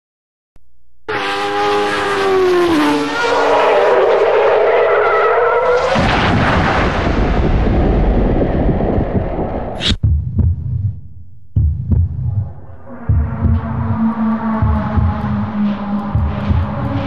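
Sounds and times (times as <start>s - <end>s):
race car engine at high revs: 1.1s - 5.9s, 12.8s - 17.0s
tyre skid screech: 1.8s - 6.7s
car crashing into wall: 5.6s - 7.7s.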